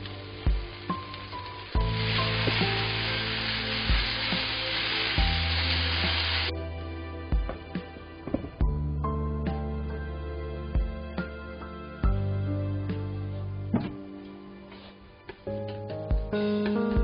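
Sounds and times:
vegetables sizzling in a frying pan: 0.0s - 6.5s
slow background music: 0.0s - 17.0s.

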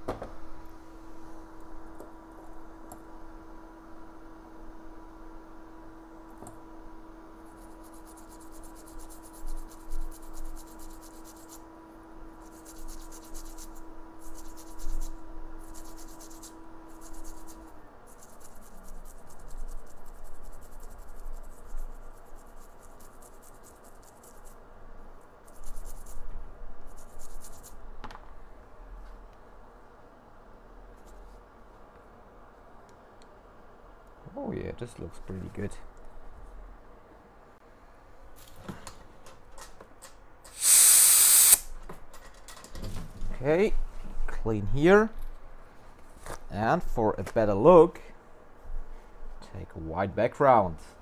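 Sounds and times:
steady background hum: 0.0s - 51.0s
wipe rubbing scratchily on chip: 7.5s - 11.6s, 12.4s - 24.6s, 25.4s - 27.8s.

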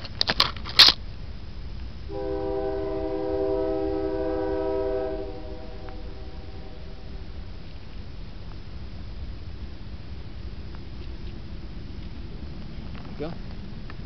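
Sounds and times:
train horn chord: 2.1s - 7.6s.

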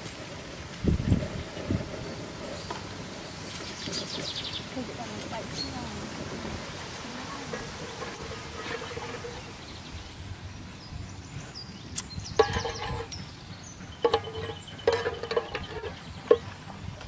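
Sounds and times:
metal spoon scraping pot: 7.4s - 9.6s, 12.4s - 13.2s, 13.9s - 16.5s
sharp metal clanks: 12.3s - 16.5s.

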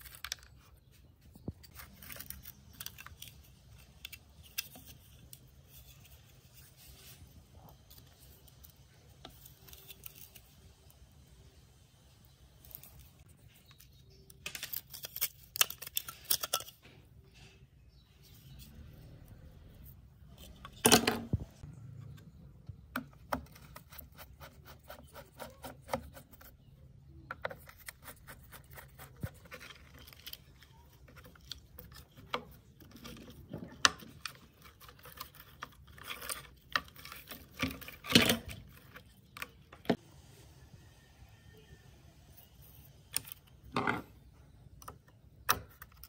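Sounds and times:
plastic parts clicking and rattling: 12.6s - 17.5s, 27.3s - 40.0s.

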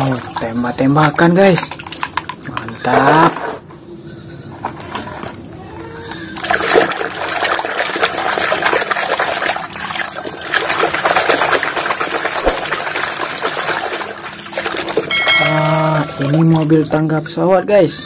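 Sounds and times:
hand sloshing water in basin: 0.0s - 3.4s, 6.4s - 17.2s.

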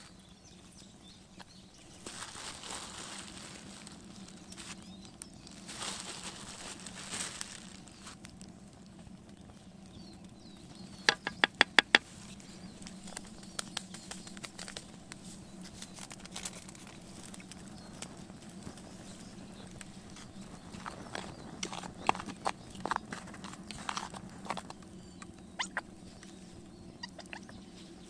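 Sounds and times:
wooden spoon scraping plastic cup: 11.1s - 12.0s, 20.7s - 25.3s
sharp taps: 11.1s - 12.1s.

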